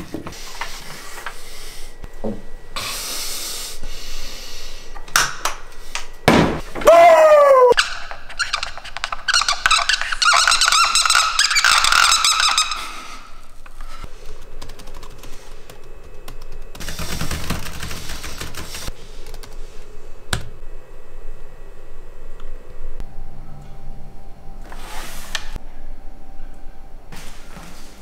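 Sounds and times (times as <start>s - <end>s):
marker squeaking on a whiteboard: 7.8s - 13.1s
computer keyboard typing: 14.3s - 19.6s.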